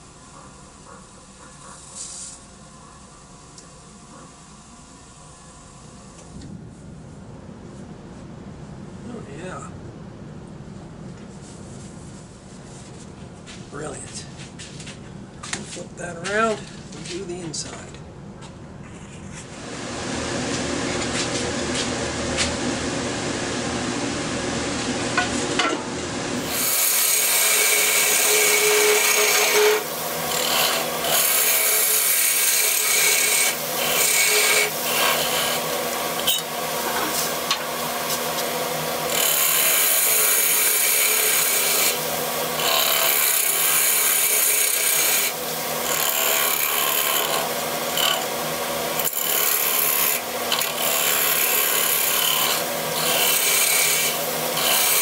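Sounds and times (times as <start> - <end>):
wood lathe tool scraping: 26.4 - 55.0.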